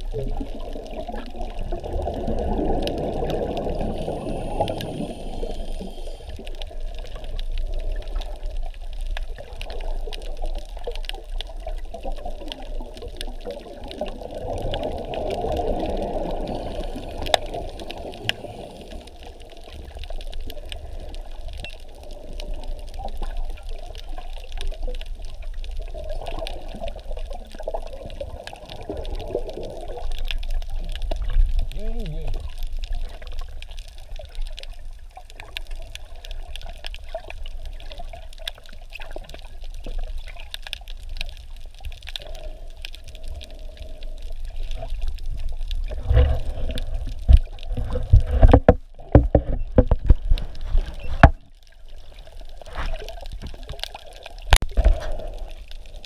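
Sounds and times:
air bubbles from diver exhaling: 0:00.0 - 0:08.5, 0:12.3 - 0:19.7
water rushing underwater: 0:00.0 - 0:56.0.

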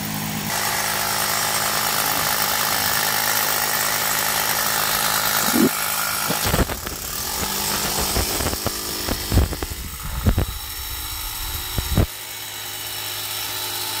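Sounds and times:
steady mechanical hiss: 0:05.8 - 0:12.1
knocks and bumps: 0:06.3 - 0:12.1
low rumble: 0:06.7 - 0:12.1.

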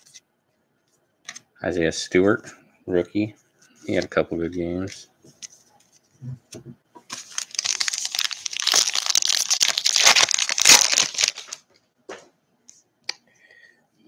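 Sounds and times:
foil wrapper tearing and crinkling: 0:07.1 - 0:11.6.

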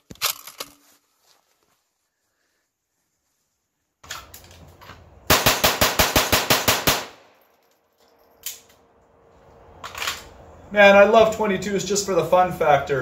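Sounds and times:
rapid pistol shots: 0:05.3 - 0:07.3.

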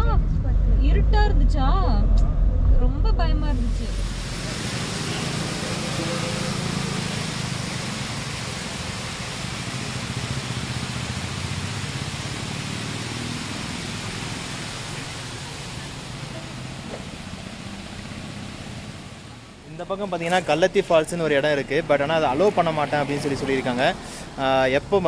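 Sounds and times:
low rumble: 0:00.0 - 0:04.5
steady rushing noise: 0:00.0 - 0:16.5.

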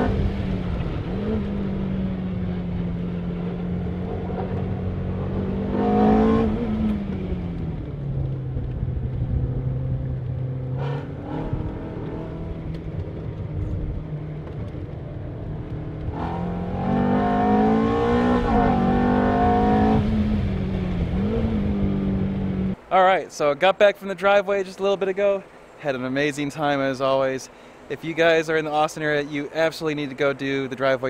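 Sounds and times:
sports car engine revving: 0:00.0 - 0:22.8.

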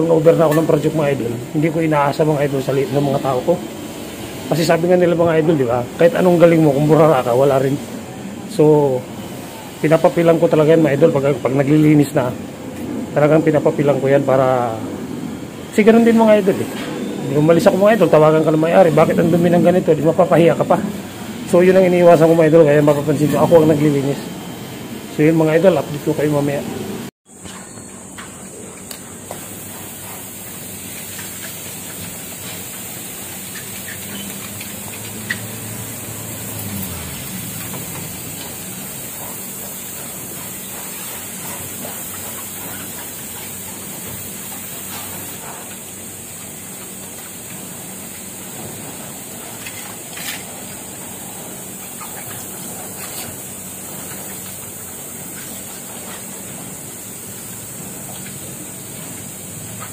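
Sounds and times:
hose spraying water on glass: 0:00.0 - 0:12.4, 0:28.5 - 0:59.9.

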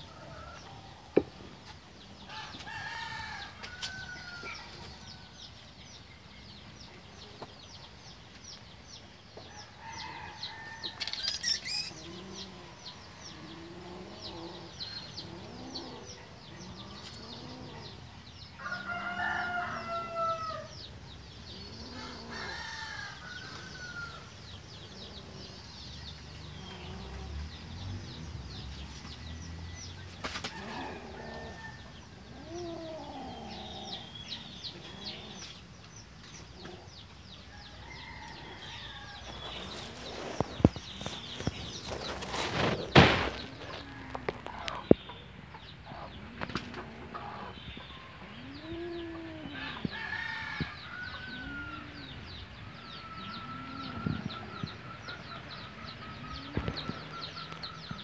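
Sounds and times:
longer louder chicken calls: 0:18.6 - 0:20.7
chickens clucking: 0:39.4 - 0:49.9, 0:53.2 - 0:58.0.

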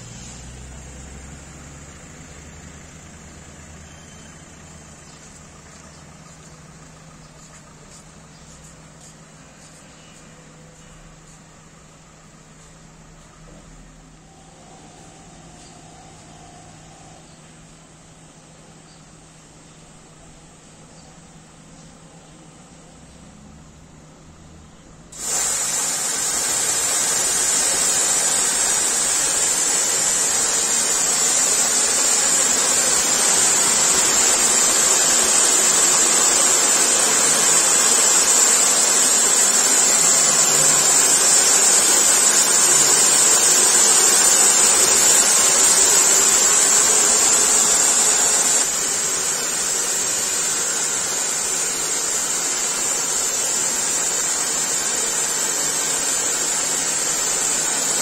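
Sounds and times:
car wash water spray hissing: 0:00.0 - 0:09.7, 0:25.1 - 0:58.0.

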